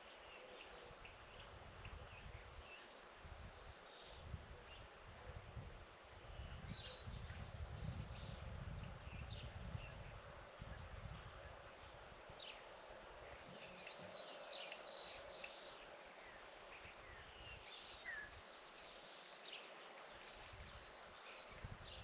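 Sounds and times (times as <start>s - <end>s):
wind on microphone: 0.9s - 12.6s, 21.5s - 22.0s
small birds chirping: 10.7s - 22.0s.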